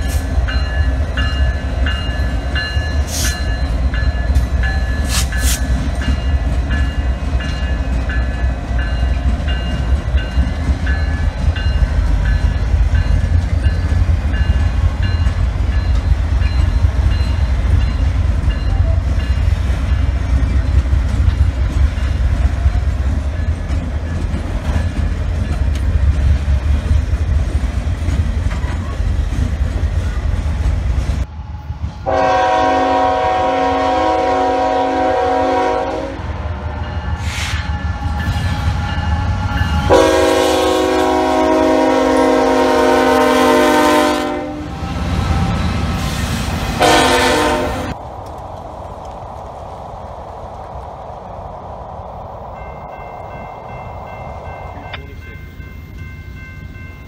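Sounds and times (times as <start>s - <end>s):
train rumbling past: 0.0s - 57.0s
locomotive air horn chord: 32.0s - 36.3s, 39.8s - 44.8s, 46.8s - 48.0s.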